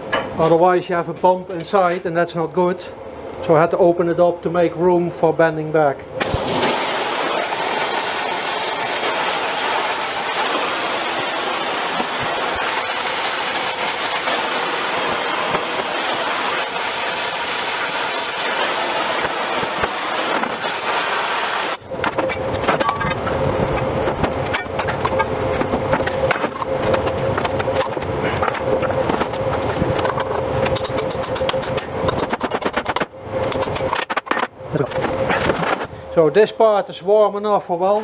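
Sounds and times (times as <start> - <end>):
rough sound with steady hum: 0.0 - 38.0
gas torch flame hissing: 6.2 - 21.8.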